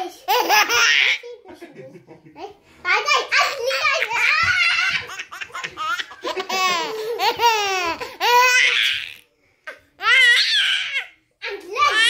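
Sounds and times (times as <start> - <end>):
baby laughing: 0.2 - 1.2, 3.4 - 9.2.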